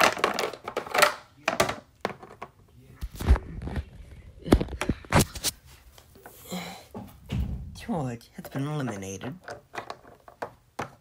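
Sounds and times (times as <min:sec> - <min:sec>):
toys thunking on hard surface: 0:00.0 - 0:02.6.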